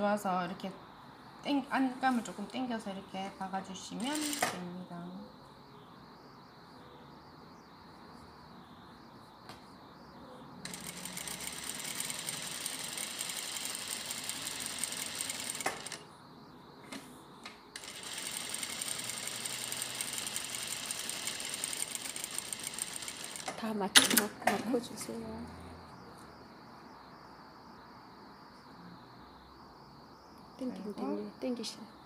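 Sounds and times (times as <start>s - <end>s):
sewing machine stitching: 4.0s - 4.6s, 10.7s - 16.0s, 17.8s - 23.6s.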